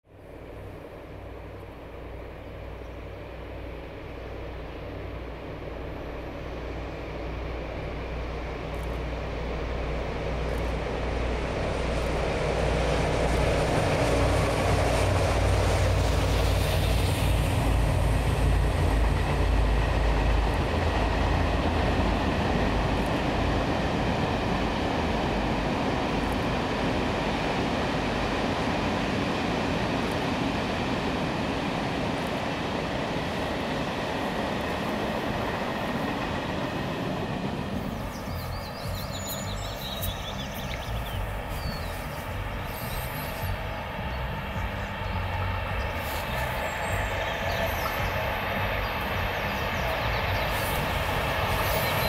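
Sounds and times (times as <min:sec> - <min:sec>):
train cars rolling rumble: 0:00.1 - 0:52.0
train deep low hum: 0:00.1 - 0:52.0.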